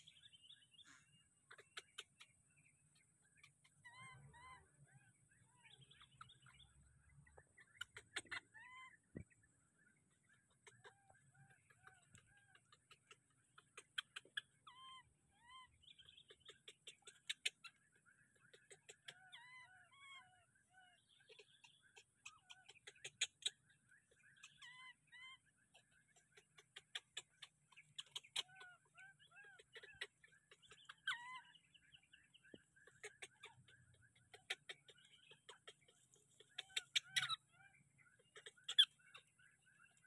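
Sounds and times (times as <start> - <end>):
short chirping animal calls: 7.5 - 9.1, 10.3 - 40.0.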